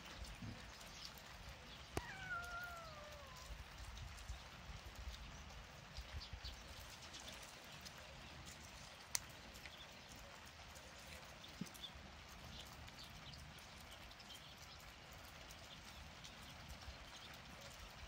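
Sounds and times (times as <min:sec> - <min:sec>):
cat meowing: 0:02.0 - 0:03.6.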